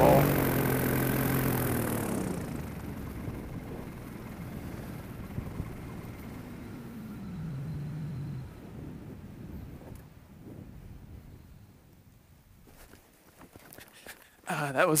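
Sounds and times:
paramotor engine idling down: 0.0s - 9.9s
wind rushing over microphone: 1.9s - 6.6s, 7.4s - 11.9s.

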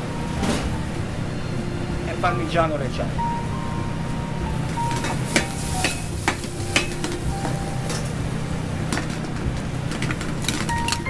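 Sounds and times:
steady low hum: 0.0s - 11.0s
sauce sizzling in a pan: 4.4s - 7.8s.

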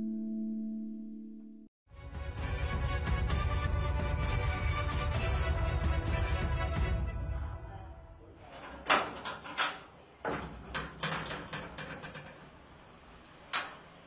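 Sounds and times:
metal gate clanking and rattling: 8.4s - 12.6s.

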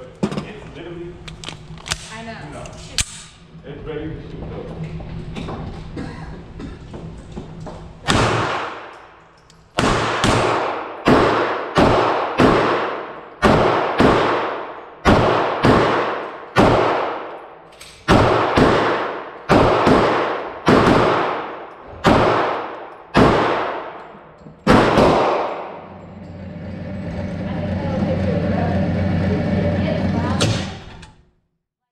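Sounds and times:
pistol shots echoing indoors: 8.0s - 25.9s.

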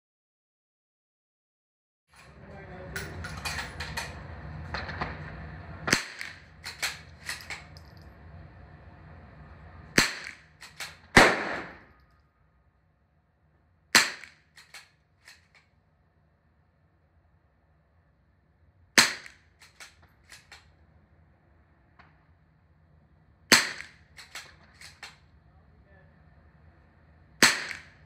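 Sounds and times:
rifle shots: 5.8s - 7.8s, 10.0s - 12.0s, 13.9s - 15.5s, 19.0s - 20.6s, 23.5s - 25.2s, 27.4s - 28.0s
rifle bolt clicking: 10.6s - 11.0s, 14.6s - 15.6s, 19.6s - 20.6s, 24.2s - 25.2s.

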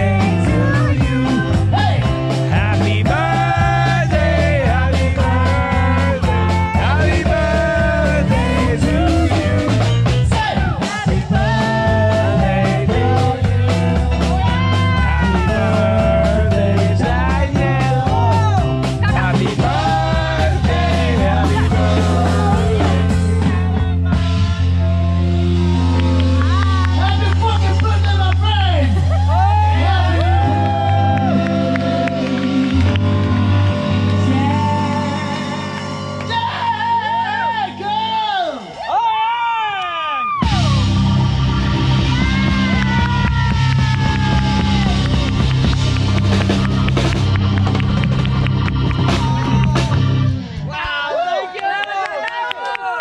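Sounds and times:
person singing: 0.0s - 25.8s, 29.3s - 37.8s, 49.0s - 50.5s
blues-rock band music: 0.0s - 38.0s, 40.4s - 50.7s
electric guitar bending notes: 11.3s - 38.1s, 40.4s - 50.7s.

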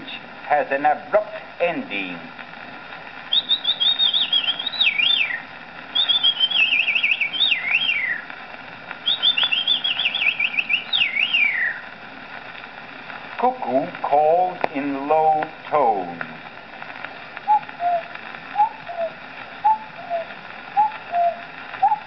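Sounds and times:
record surface hiss: 0.0s - 22.0s
man whistling birdsong: 3.3s - 8.3s, 9.0s - 11.8s, 17.5s - 19.1s, 19.7s - 22.0s.

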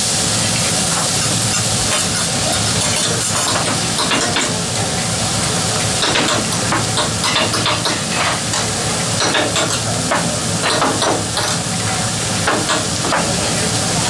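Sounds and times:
food sizzling on a griddle: 0.0s - 14.0s
metal utensils clicking and scraping: 1.1s - 4.6s.

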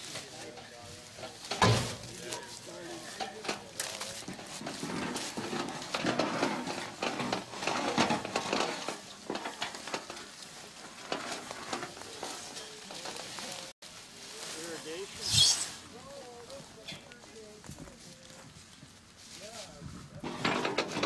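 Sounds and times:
dry leaves rustling: 0.0s - 20.2s.

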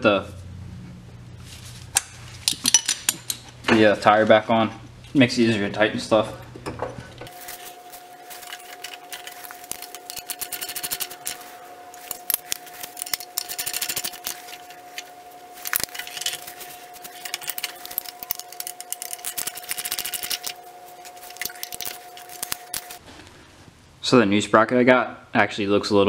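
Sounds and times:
ratchet wrench clicking: 8.8s - 11.4s, 12.0s - 14.6s, 17.0s - 20.6s.

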